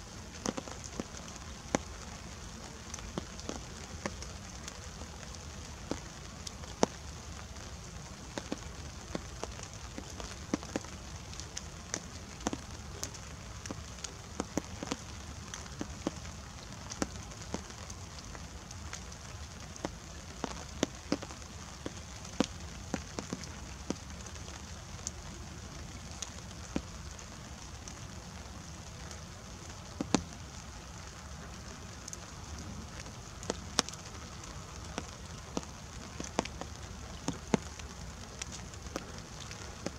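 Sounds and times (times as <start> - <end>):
soft rain hiss: 0.0 - 39.9
raindrops tapping: 0.1 - 39.9.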